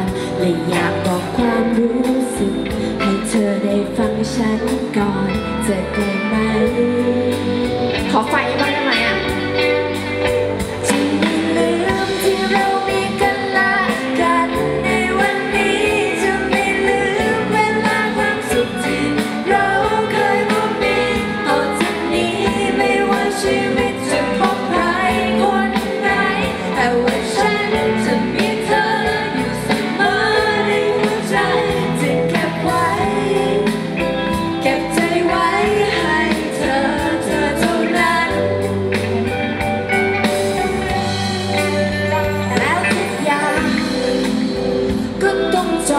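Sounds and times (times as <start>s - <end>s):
pop band playing live: 0.0s - 45.9s
person singing: 10.6s - 45.9s.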